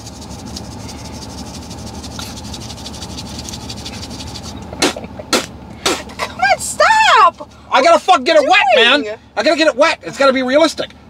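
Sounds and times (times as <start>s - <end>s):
hands rubbing together: 0.0s - 6.2s.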